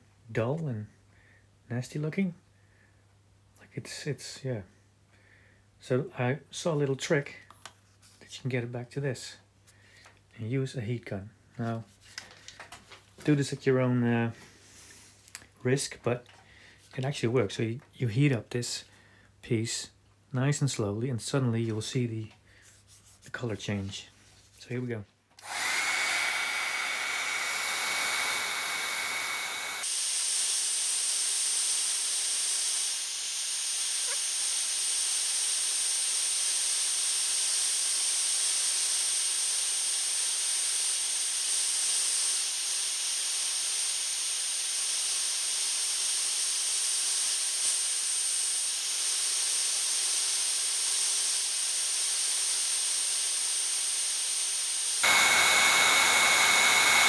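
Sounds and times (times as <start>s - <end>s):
heat gun blowing: 25.4s - 57.0s.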